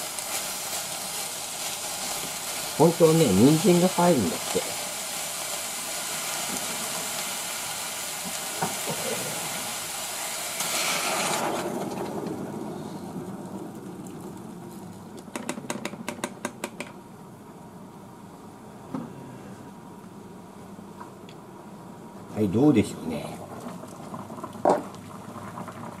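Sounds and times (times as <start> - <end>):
water pouring into saucepan: 0.0 - 12.1
kettle hiss: 0.0 - 16.8.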